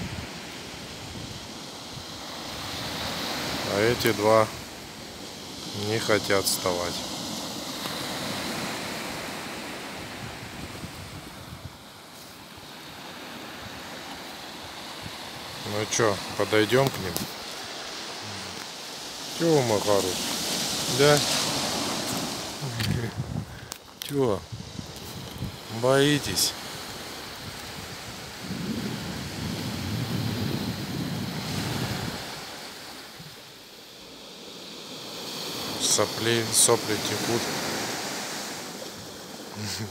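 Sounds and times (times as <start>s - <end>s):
wind buffeting the microphone: 0.0s - 4.8s, 10.0s - 11.9s, 20.4s - 32.6s
waves washing onto a beach: 0.0s - 39.9s
wind buffeting microphone: 21.4s - 23.7s, 24.3s - 25.8s, 27.3s - 32.5s.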